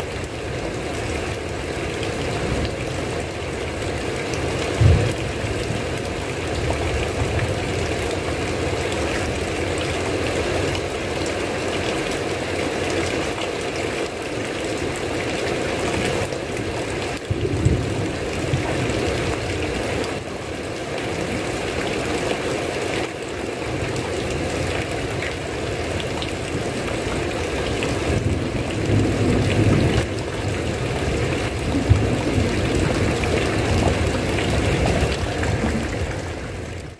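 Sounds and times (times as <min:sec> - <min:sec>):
heavy rain: 0:00.0 - 0:36.9
thunder rumbling: 0:04.7 - 0:06.0, 0:28.1 - 0:36.9.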